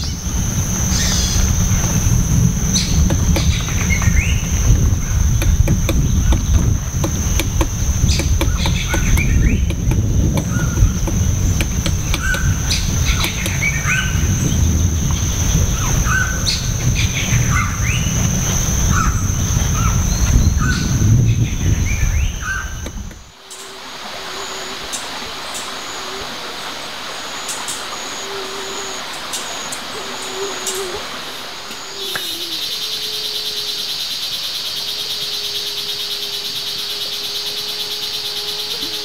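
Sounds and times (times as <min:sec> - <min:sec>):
low rumble: 0:00.0 - 0:23.4
bird calls: 0:00.0 - 0:39.0
high insect whine: 0:00.0 - 0:39.0.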